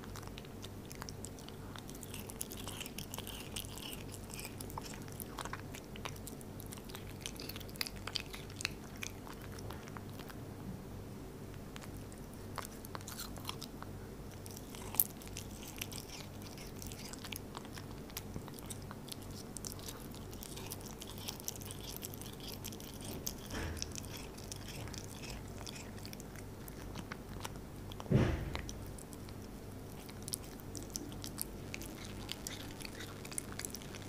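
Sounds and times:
cat chewing meat: 0.0 - 10.7, 11.3 - 34.0.

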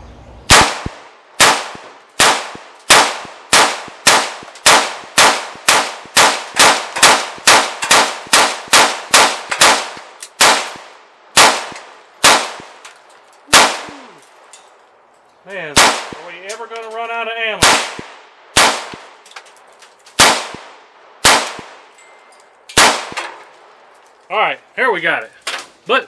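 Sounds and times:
rapid gunshots: 0.5 - 10.8, 11.4 - 12.7, 13.5 - 14.0, 15.8 - 16.3, 17.6 - 19.1, 20.2 - 21.8.

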